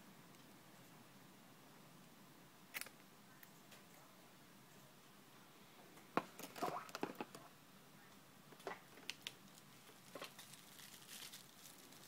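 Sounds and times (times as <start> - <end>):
soft rustle: 9.2 - 12.0.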